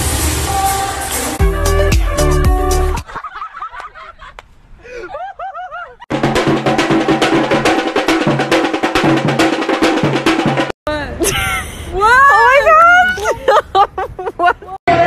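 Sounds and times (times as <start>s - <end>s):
music with fast dense drumming: 0.0s - 3.0s, 6.1s - 10.8s.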